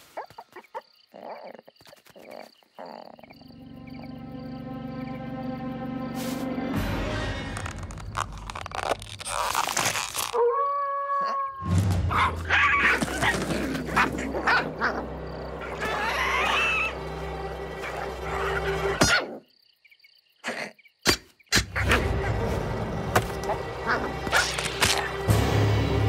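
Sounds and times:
animal-like cries: 10.4 - 17.0.

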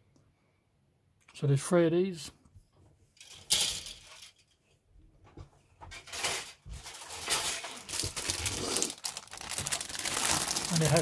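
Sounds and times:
plastic bag crinkling: 6.0 - 11.0.

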